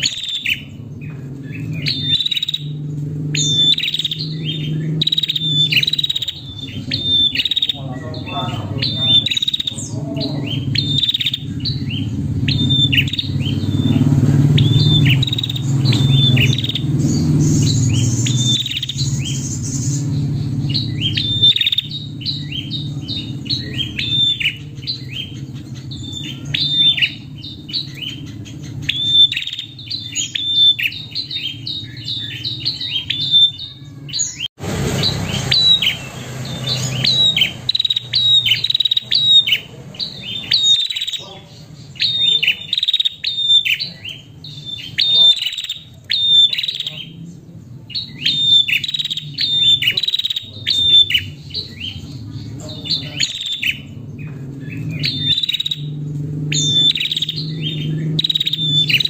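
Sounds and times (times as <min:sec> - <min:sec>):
steady low hum: 0:00.0 - 0:33.1
bird sharp chirps: 0:00.0 - 0:59.0.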